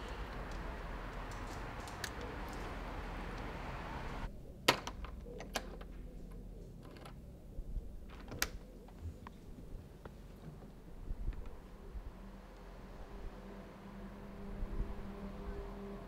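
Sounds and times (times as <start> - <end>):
steady hiss: 0.0 - 4.3.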